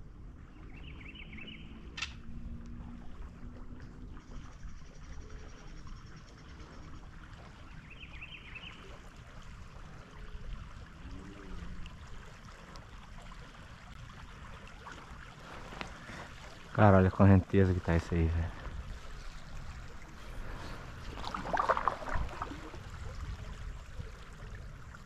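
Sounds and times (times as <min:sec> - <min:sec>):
river water rushing: 0:14.1 - 0:23.1.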